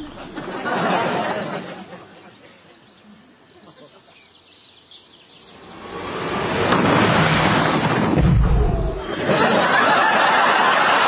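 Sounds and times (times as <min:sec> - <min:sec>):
explosion rush of noise: 0:05.9 - 0:09.4
deep boom: 0:06.8 - 0:09.2.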